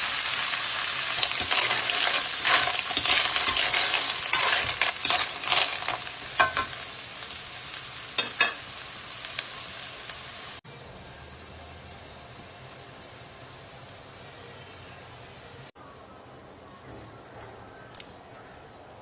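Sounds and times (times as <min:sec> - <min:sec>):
pan sizzling: 0:00.0 - 0:10.6
steady hiss: 0:00.0 - 0:15.7
shells scraping against pan: 0:01.1 - 0:06.9.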